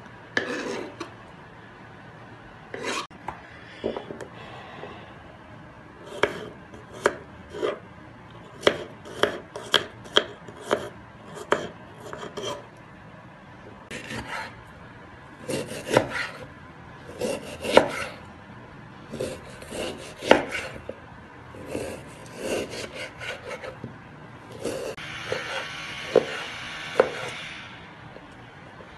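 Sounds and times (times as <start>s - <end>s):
knife chopping on wooden board: 6.1s - 7.8s, 8.6s - 12.6s, 13.9s - 14.5s, 15.5s - 16.4s, 17.2s - 18.2s, 19.1s - 20.9s, 21.6s - 23.8s, 24.5s - 27.4s
knife slicing meat: 15.5s - 16.4s, 17.1s - 18.2s, 21.6s - 23.8s.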